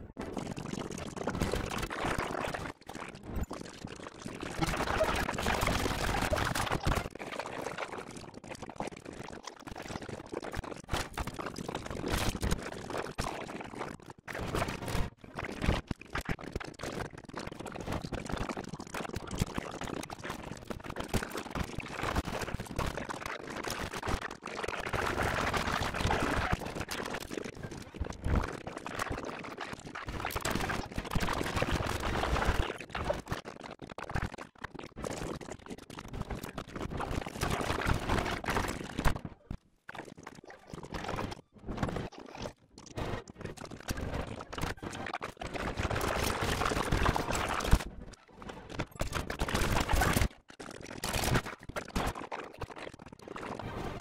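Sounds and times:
action sound effects: 4.5 - 5.6.

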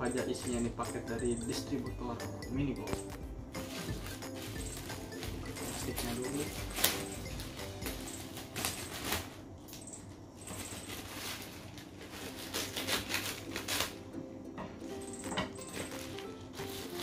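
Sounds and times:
plastic wrapping crinkling: 3.0 - 9.5, 10.4 - 14.1, 15.7 - 17.0.

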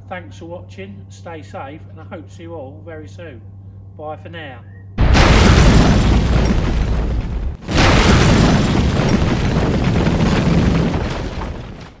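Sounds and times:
deep rumbling explosion boom: 5.0 - 12.0.

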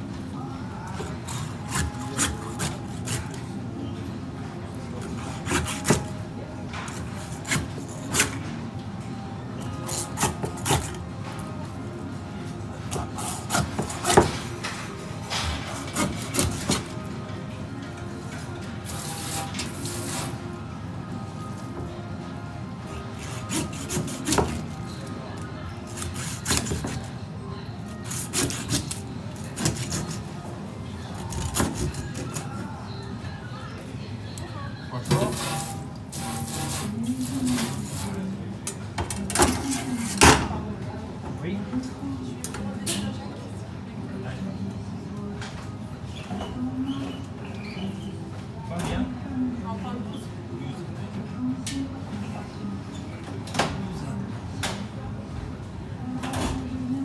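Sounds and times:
knife sawing through fish: 1.3 - 3.3, 23.2 - 24.6, 25.9 - 27.0, 28.0 - 30.2.

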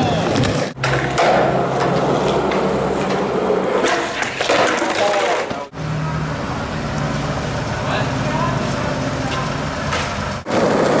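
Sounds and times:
skateboard clacks: 0.0 - 5.7, 9.3 - 11.0
skateboard wheels rolling on concrete: 0.0 - 11.0.

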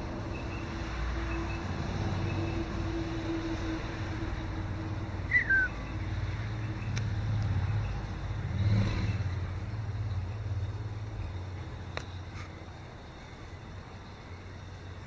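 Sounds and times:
low rumble of road traffic: 0.0 - 15.0
bird call falling in pitch: 5.3 - 5.7.

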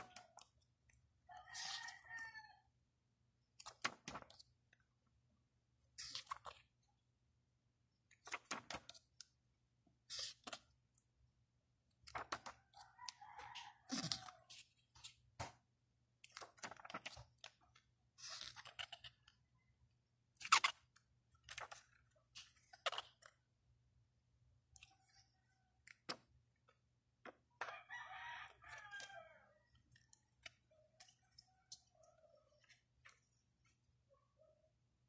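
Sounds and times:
paper pages rustling: 3.6 - 4.5, 8.2 - 9.2, 12.0 - 12.6, 16.2 - 19.4, 21.4 - 23.4.

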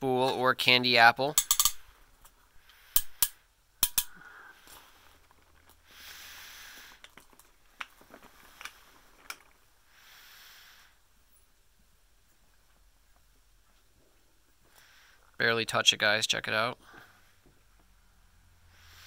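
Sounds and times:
rubbing hissing noise: 5.8 - 7.0.

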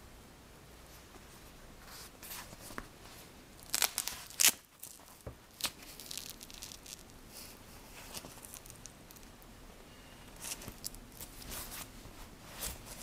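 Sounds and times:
tablet sleeve rustling and creaking: 1.8 - 9.4, 10.2 - 13.0.

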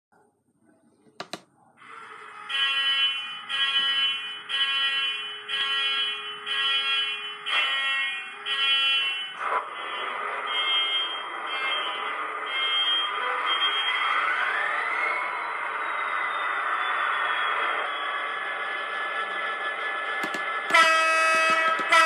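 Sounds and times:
click: 1.2 - 1.5, 20.2 - 20.5.

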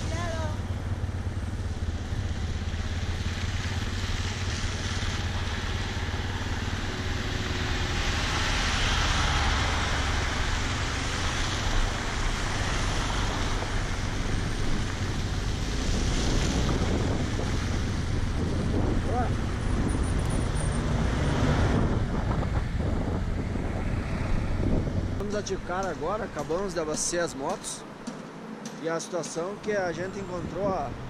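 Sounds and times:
tyres hissing through mud and water: 1.9 - 17.8
wind on microphone: 7.2 - 25.2.

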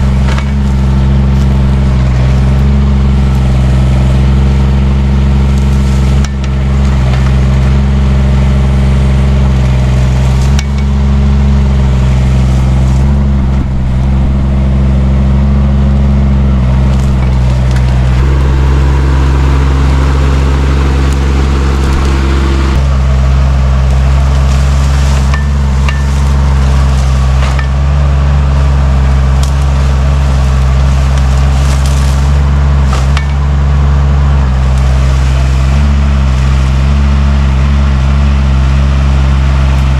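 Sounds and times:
excavator engine running: 0.0 - 39.9
brush cracking and snapping: 0.2 - 4.4, 16.8 - 37.1.

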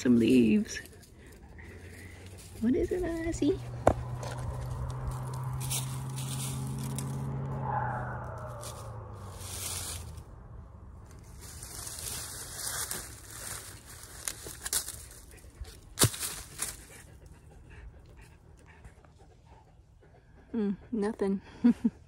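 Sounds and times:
rustling in dry leaves: 0.0 - 17.2.

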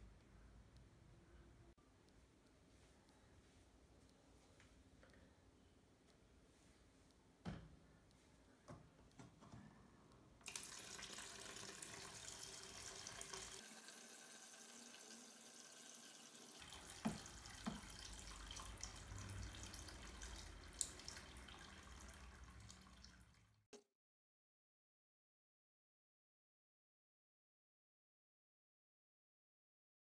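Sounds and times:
water trickling into basin: 10.5 - 23.6.

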